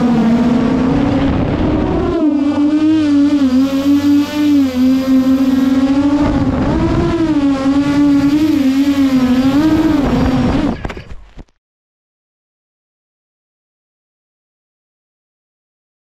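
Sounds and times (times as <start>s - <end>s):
quadcopter propellers buzzing: 0.0s - 11.1s.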